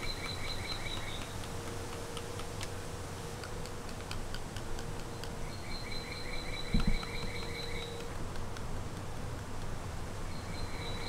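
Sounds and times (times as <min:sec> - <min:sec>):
faint clicks: 0:00.0 - 0:05.6
faint steady hum: 0:00.0 - 0:11.0.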